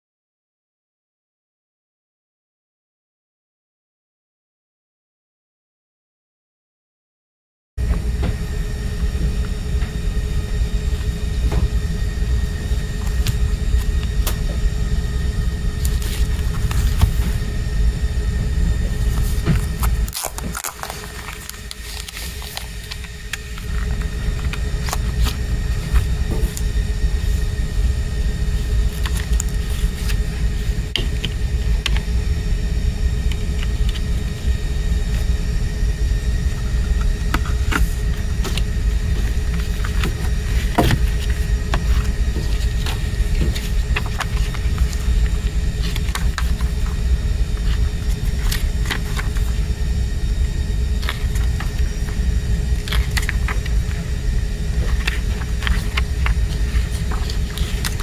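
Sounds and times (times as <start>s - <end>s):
paper and cardboard rustling: 15.7s - 17.5s, 18.7s - 27.4s, 28.5s - 32.1s, 37.3s - 49.7s, 50.9s - 58.0s.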